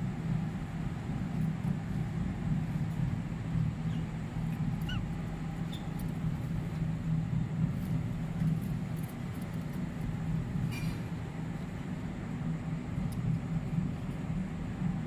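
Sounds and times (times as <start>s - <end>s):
budgerigar chirps: 4.8s - 5.1s.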